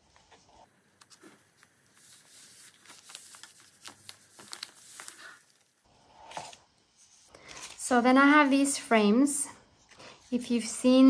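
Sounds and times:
paper rustling and crinkling: 0:01.0 - 0:06.6.

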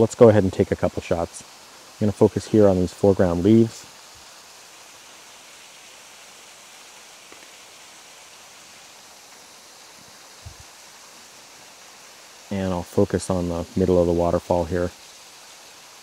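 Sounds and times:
small waterfall rushing: 0:00.0 - 0:16.0
faint low thump: 0:10.4 - 0:10.6.

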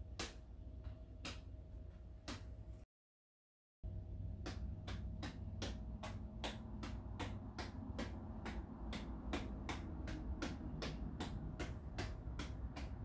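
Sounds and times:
juggling ball clicking off hands: 0:04.4 - 0:13.0.

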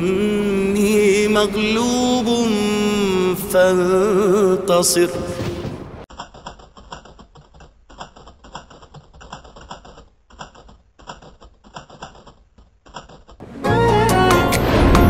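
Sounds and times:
loud music: 0:13.4 - 0:15.0.

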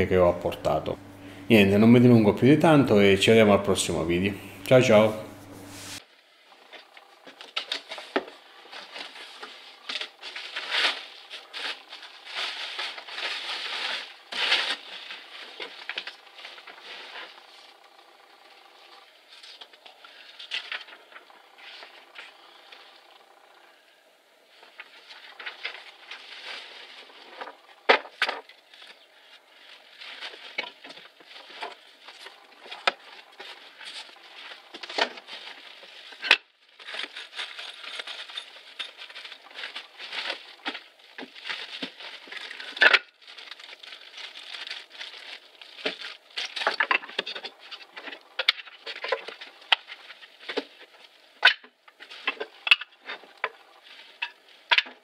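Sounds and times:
bubble wrap rustling and crackling: 0:07.3 - 0:17.6, 0:24.7 - 0:55.0.

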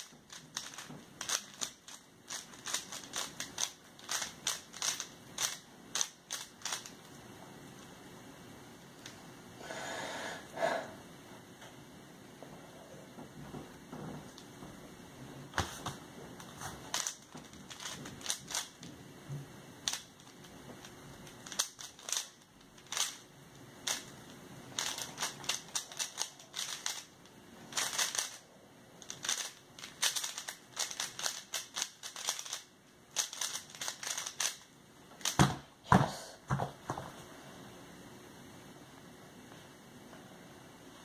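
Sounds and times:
plastic cube clicking as turned: 0:00.3 - 0:07.0, 0:16.9 - 0:18.8, 0:19.8 - 0:20.4, 0:21.4 - 0:23.2, 0:23.8 - 0:24.1, 0:24.8 - 0:27.1, 0:27.7 - 0:28.4, 0:29.0 - 0:34.6.

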